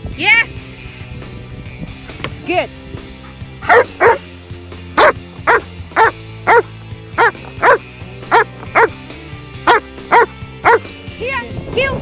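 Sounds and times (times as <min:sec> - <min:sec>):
background music: 0:00.0 - 0:12.0
dog barking: 0:03.6 - 0:04.2, 0:05.0 - 0:08.9, 0:09.7 - 0:10.9.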